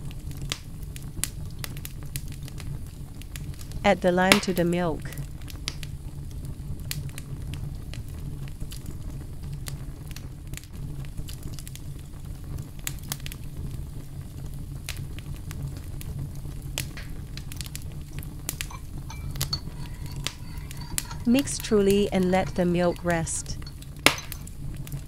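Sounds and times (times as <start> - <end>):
small crackles and clicks: 0.0 - 25.0
steady low hum: 18.6 - 24.5.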